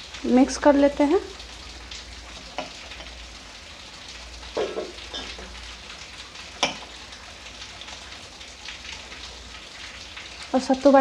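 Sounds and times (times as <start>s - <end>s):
knocks against steel bowl: 4.6s - 5.0s.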